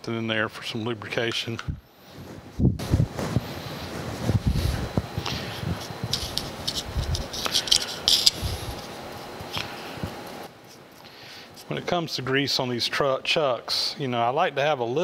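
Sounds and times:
small tool scraping and clicking: 6.1s - 8.4s.

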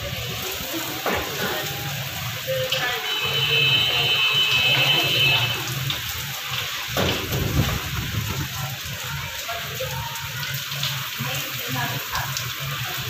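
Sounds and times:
heavy rain on rooftops: 0.0s - 13.0s
wind buffeting microphone: 5.9s - 9.4s.

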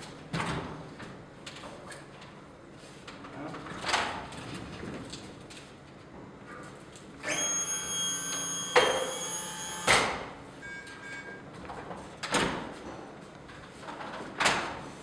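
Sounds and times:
electric motor whine: 7.2s - 10.0s.

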